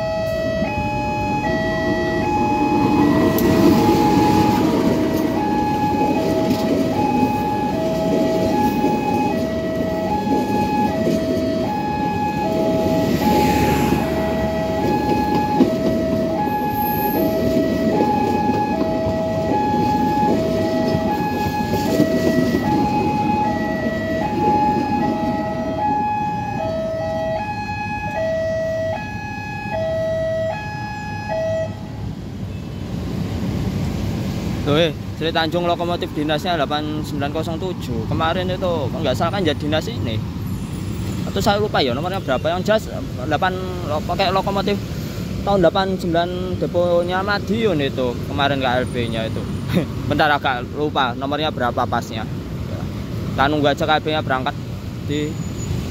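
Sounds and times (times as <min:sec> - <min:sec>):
train coaches rumbling over rails: 0:00.0 - 0:27.0, 0:31.9 - 0:55.9
level-crossing alarm: 0:00.0 - 0:31.9.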